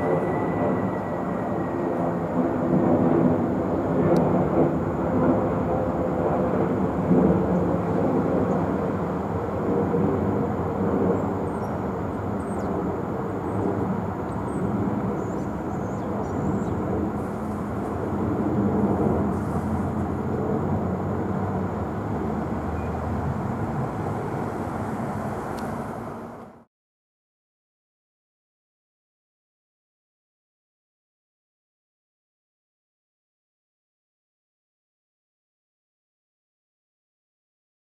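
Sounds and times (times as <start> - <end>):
jet engines rumbling: 0.0 - 26.7.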